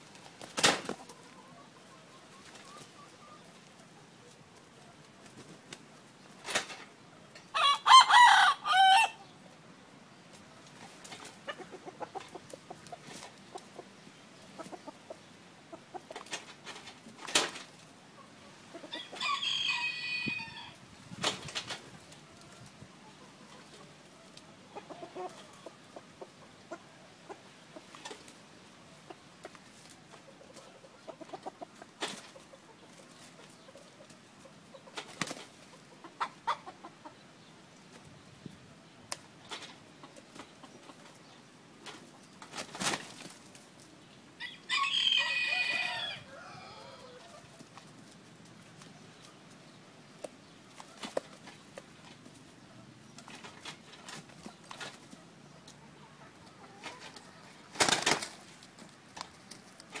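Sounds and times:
rooster wings flapping: 0.1s - 1.1s, 42.5s - 43.6s, 57.1s - 60.0s
rooster crowing: 7.5s - 9.2s, 19.0s - 20.8s, 44.4s - 47.4s.

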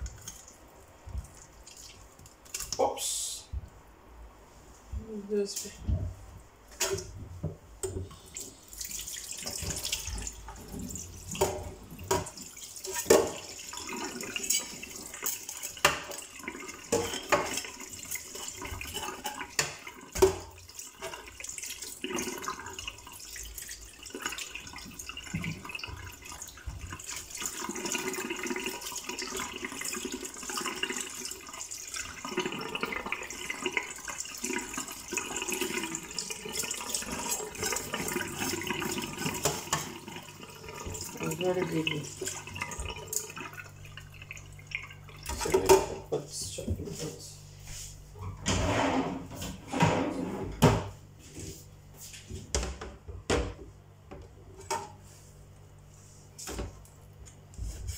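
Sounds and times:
tap water running into sink: 6.7s - 46.8s.

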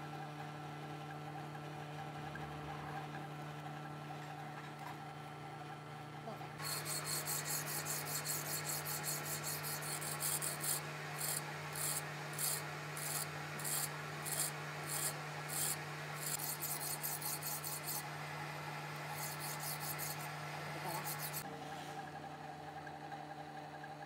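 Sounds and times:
file rasping against steel: 6.6s - 18.1s, 19.1s - 21.4s
lathe motor humming: 6.6s - 21.5s.

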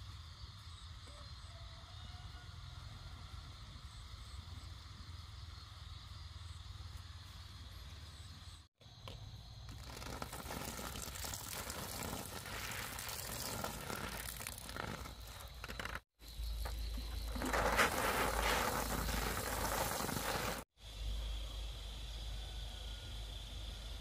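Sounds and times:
water pouring onto soil: 9.7s - 20.6s.

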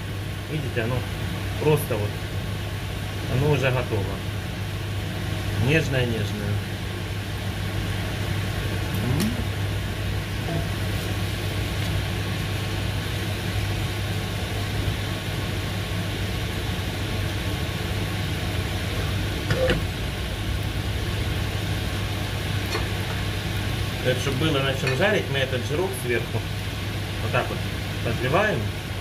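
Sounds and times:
meat sizzling in a pan: 6.8s - 28.9s.

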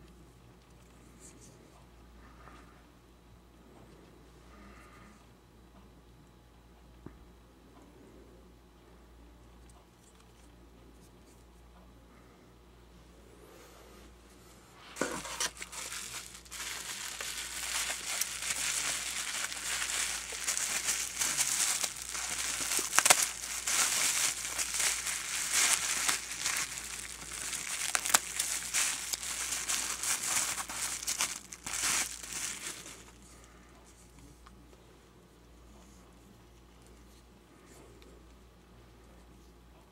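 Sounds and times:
bubble wrap crinkling: 15.0s - 33.3s.

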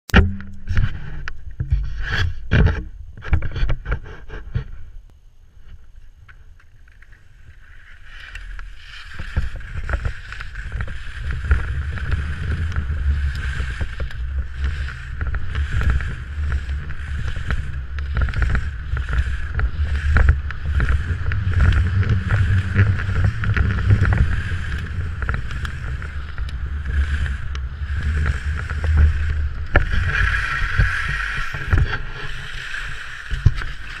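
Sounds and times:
wind rumble on microphone: 0.2s - 34.0s
skis scraping on snow: 6.6s - 34.0s.

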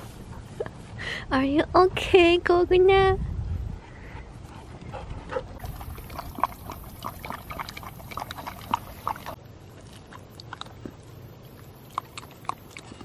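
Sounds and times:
puppy lapping water: 5.6s - 13.0s.

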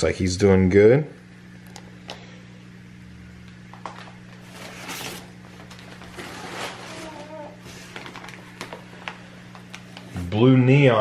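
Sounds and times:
steady low hum: 0.0s - 11.0s
newspaper rustling and crinkling: 3.8s - 10.1s.

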